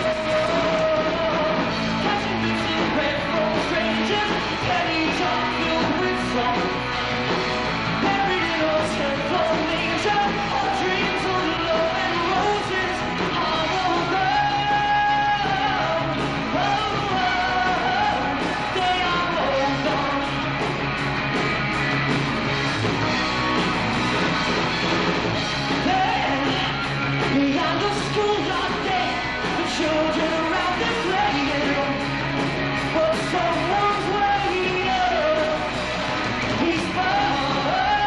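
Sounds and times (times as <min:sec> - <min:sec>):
person singing: 0:00.0 - 0:06.9, 0:08.0 - 0:20.5, 0:25.7 - 0:38.0
bass guitar: 0:00.0 - 0:38.0
drums: 0:00.0 - 0:38.0
electric guitar: 0:00.0 - 0:38.0.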